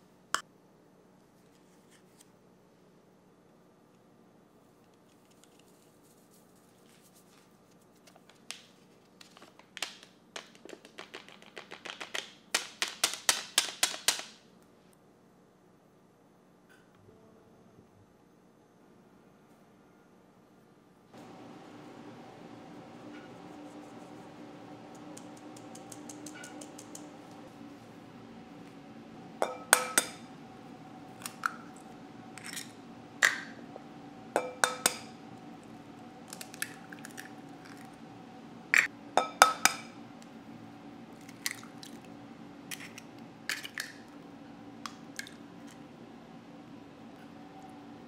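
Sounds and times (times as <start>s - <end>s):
faint steady hum: 0.0s - 12.8s, 14.4s - 48.0s
flour sifting through mesh sieve: 21.2s - 25.9s.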